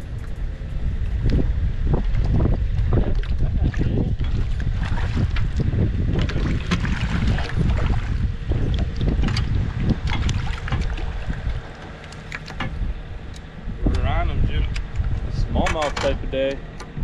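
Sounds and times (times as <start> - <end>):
wind rumbling on microphone: 0.0 - 17.0
fish splashing and thrashing: 2.0 - 13.7.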